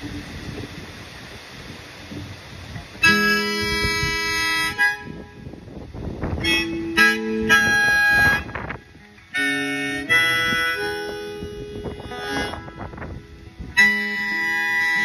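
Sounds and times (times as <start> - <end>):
wind hiss: 0.0 - 15.0
harmonica playing held chords: 3.0 - 5.5, 6.3 - 15.0
acoustic guitar: 6.3 - 15.0.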